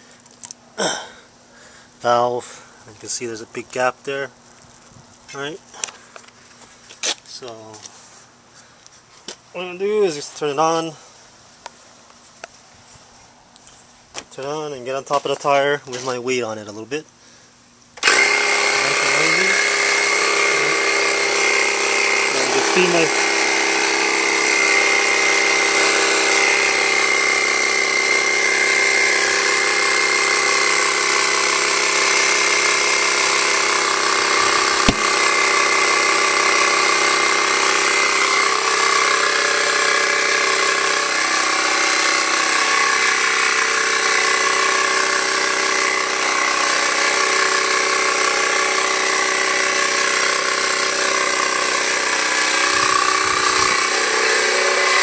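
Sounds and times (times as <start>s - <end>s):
air compressor running: 0.0s - 4.2s, 17.2s - 55.0s
tire bead cracking: 34.8s - 35.2s.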